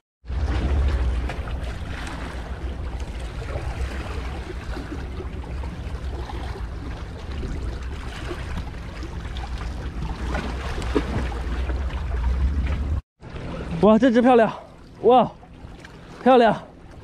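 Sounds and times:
small waves lapping on rocks: 0:00.4 - 0:12.3.

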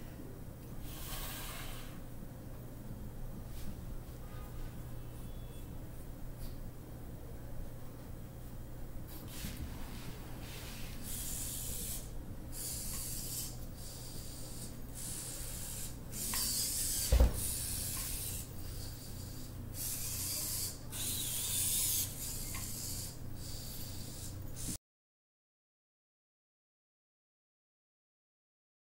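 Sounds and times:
robot servos whirring: 0:11.0 - 0:24.8
thump: 0:17.0 - 0:17.5.

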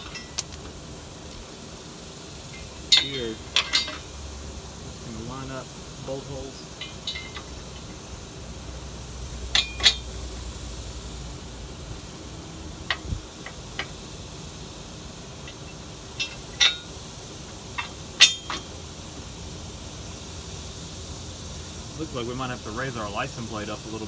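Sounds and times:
metallic clinks of bolts: 0:02.6 - 0:04.1, 0:06.8 - 0:07.6, 0:09.5 - 0:10.2, 0:17.8 - 0:18.7.

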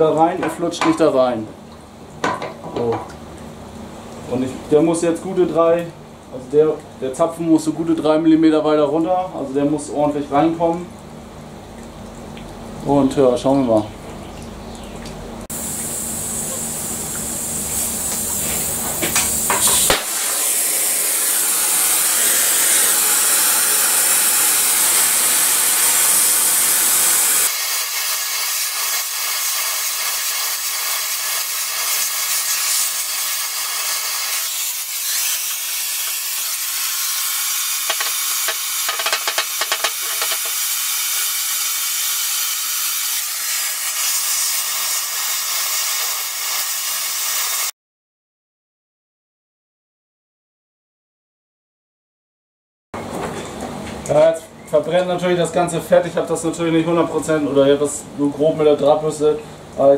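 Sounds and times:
gas torch flame hissing: 0:15.5 - 0:47.7.

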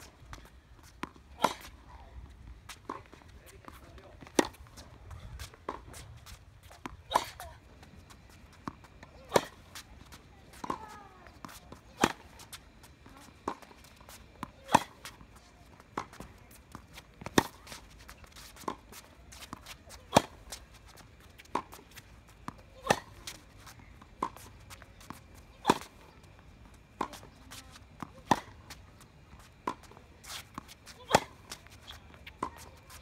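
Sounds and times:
tennis racket hitting ball: 0:01.0 - 0:01.8, 0:06.6 - 0:07.5, 0:08.6 - 0:09.8, 0:10.4 - 0:15.4, 0:16.0 - 0:20.6, 0:21.4 - 0:26.2, 0:27.0 - 0:28.6, 0:29.6 - 0:33.0.

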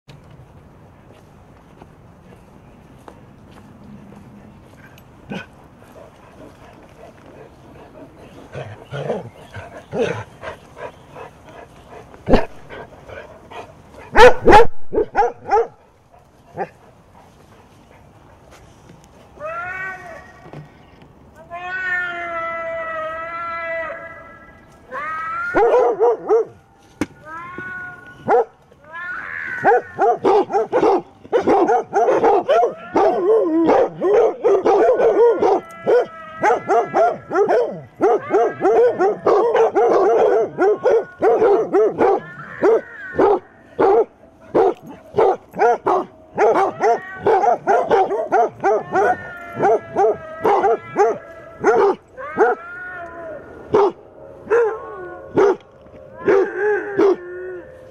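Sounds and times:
hounds barking and baying: 0:04.1 - 0:18.8, 0:25.5 - 0:26.8, 0:28.0 - 0:28.6, 0:29.5 - 0:52.7, 0:53.5 - 0:57.9.

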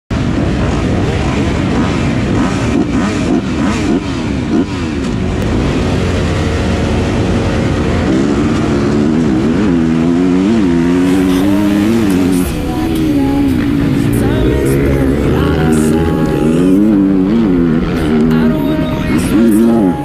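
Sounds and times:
dirt bike engines revving: 0:00.1 - 0:20.0
dirt bike engine shifting gears: 0:00.2 - 0:20.0.

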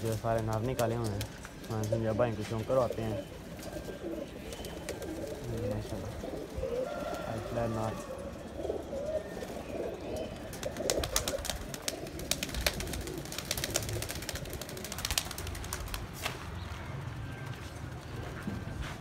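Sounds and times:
wing claps and flapping: 0:00.0 - 0:02.0, 0:10.5 - 0:16.6
pigeons cooing: 0:00.0 - 0:16.2.

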